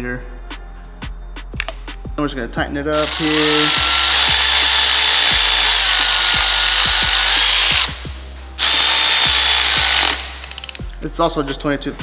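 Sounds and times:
air ratchet hissing: 0:03.0 - 0:10.9.

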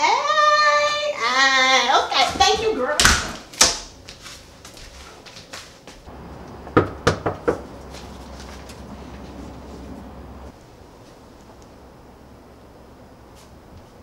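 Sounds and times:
low steady hum: 0:00.0 - 0:14.0
knocking on a door: 0:06.7 - 0:07.7.

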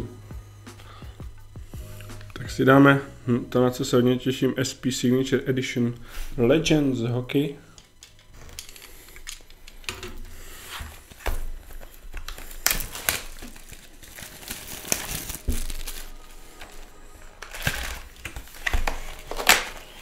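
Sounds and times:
plastic shrink wrap crinkling: 0:07.8 - 0:20.0.

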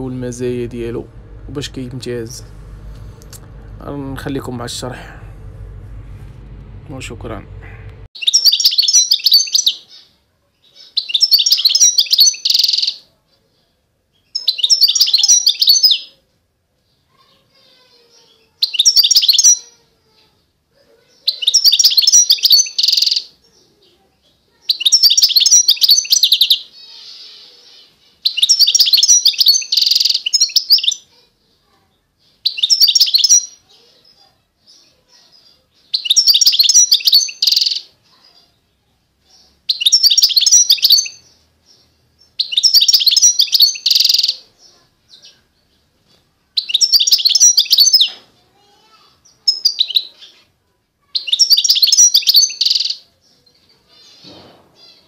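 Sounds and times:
finch twittering: 0:35.9 - 0:37.9, 0:39.4 - 0:44.4, 0:46.6 - 0:48.2.

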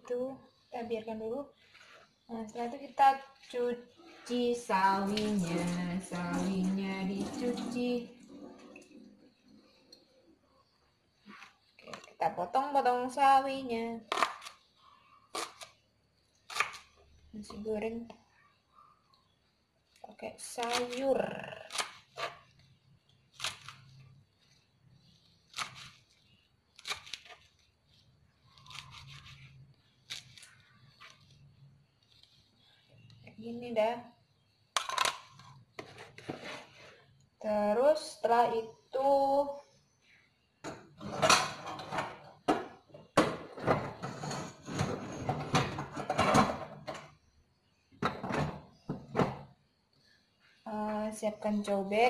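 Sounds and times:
rustling: 0:23.4 - 0:33.2
household objects clattering: 0:40.7 - 0:47.1.

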